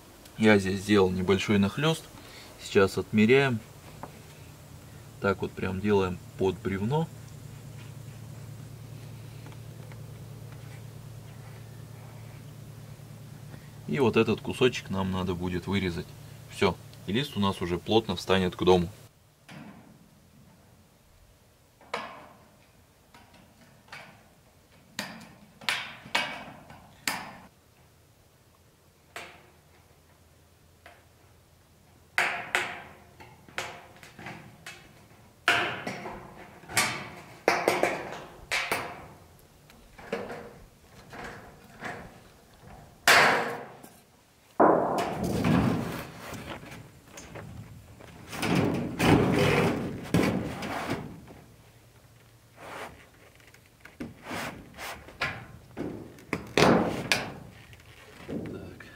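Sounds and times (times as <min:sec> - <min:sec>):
rustling clatter: 0:45.1 - 0:58.9.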